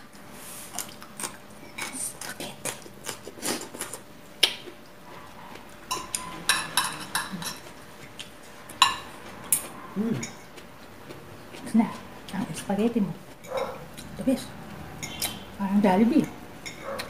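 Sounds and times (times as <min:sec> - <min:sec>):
cutlery clinking on plates: 0:05.9 - 0:07.7, 0:13.4 - 0:13.8.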